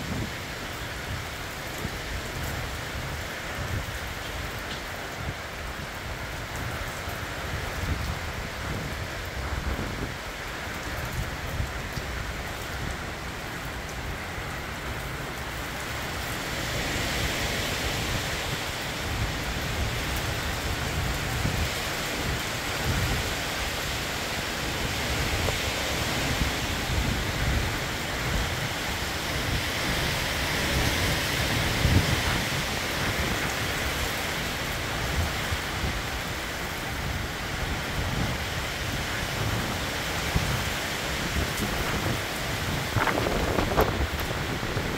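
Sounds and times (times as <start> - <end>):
heavy rain falling: 0.0 - 44.9
low thunder rumbling: 41.6 - 44.9.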